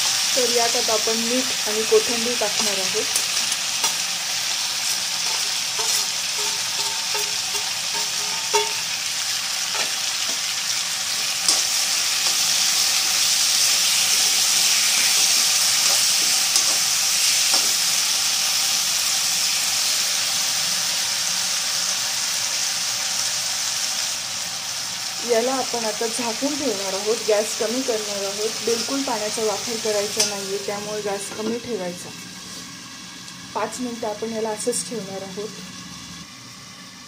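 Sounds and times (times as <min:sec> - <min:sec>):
potato slices sizzling in oil: 0:00.0 - 0:37.0
metal spatula knocking pan: 0:05.3 - 0:08.9.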